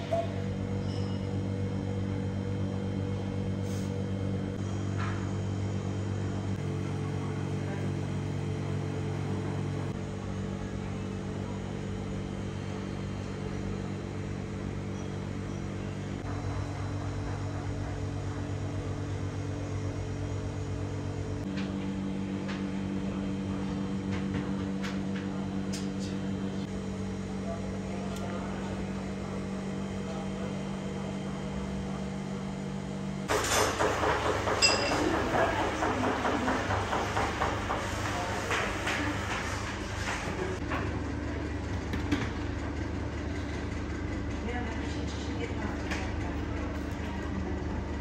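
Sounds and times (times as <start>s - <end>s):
low hum of held tones: 0.0s - 33.3s.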